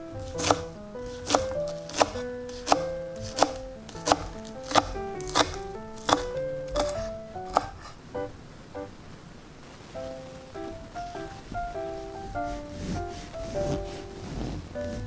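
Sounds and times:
piano background music: 0:00.0 - 0:09.1, 0:09.8 - 0:15.0
knife chopping on wooden board: 0:00.2 - 0:08.0.

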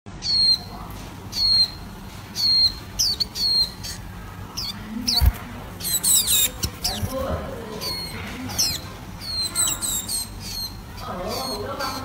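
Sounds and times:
bird calling and chirping: 0:00.1 - 0:12.0.

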